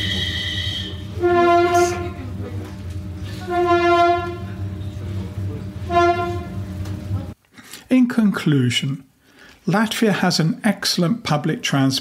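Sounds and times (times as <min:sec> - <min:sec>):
high thin tone: 0:00.0 - 0:02.3, 0:03.2 - 0:07.2
vehicle horn: 0:00.0 - 0:02.4, 0:03.2 - 0:04.8, 0:05.8 - 0:06.9.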